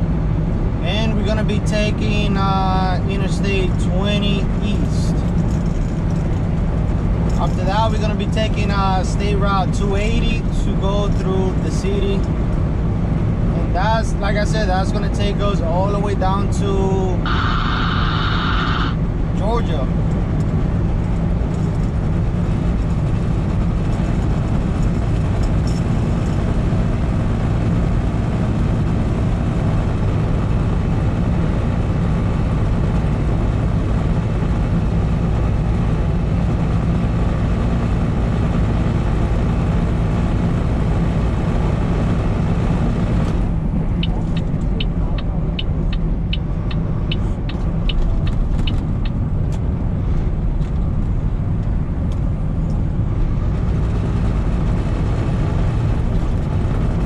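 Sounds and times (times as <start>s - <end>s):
truck engine and road noise: 0.0s - 57.0s
high ticks: 44.0s - 49.2s.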